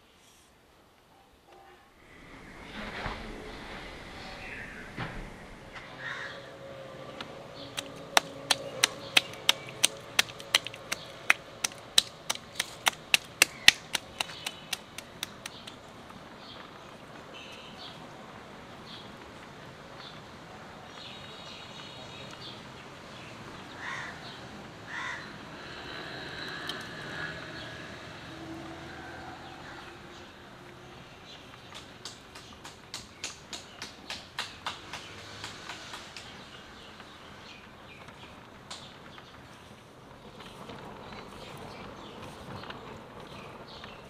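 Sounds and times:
birds calling: 4.2s - 6.6s, 7.5s - 16.6s
crows cawing: 6.0s - 6.5s, 23.8s - 24.3s, 24.9s - 25.4s
steady sharp clicks: 7.8s - 15.8s.

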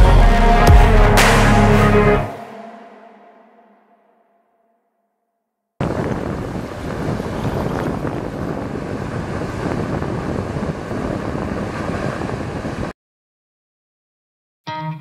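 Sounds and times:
water rushing from bow wave: 5.8s - 12.9s
wind buffeting microphone: 5.8s - 12.9s.

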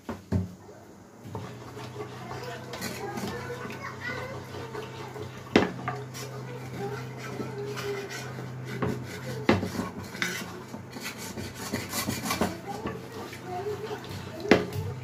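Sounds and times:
wooden spatula scraping a pan: 1.3s - 15.0s
spatula knocking against pan: 5.5s - 13.2s.

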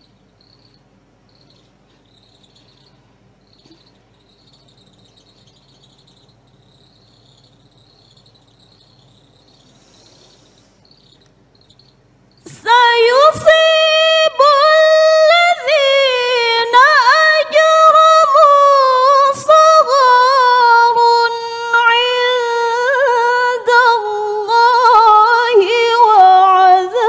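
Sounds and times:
insects chirping: 0.0s - 23.1s
woman reciting in melodic chant: 12.4s - 27.0s.

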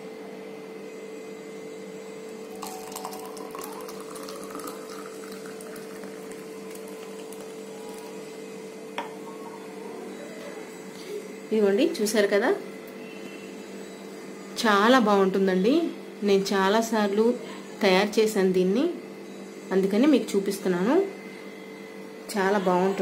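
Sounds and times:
milk pouring into a mug: 2.3s - 9.2s.

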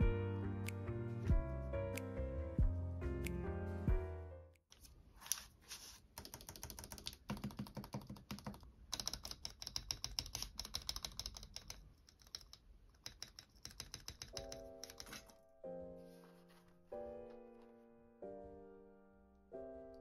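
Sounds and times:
background music: 0.0s - 4.6s.

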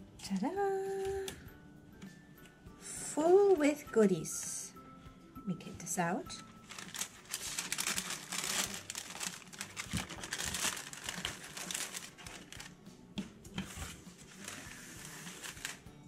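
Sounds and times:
paper packaging crinkling: 6.4s - 12.8s, 13.6s - 15.9s.

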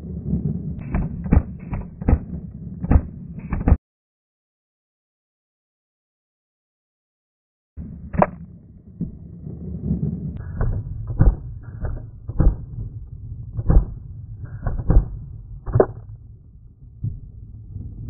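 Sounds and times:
handling and wind rumble: 0.0s - 3.7s, 7.8s - 18.0s.

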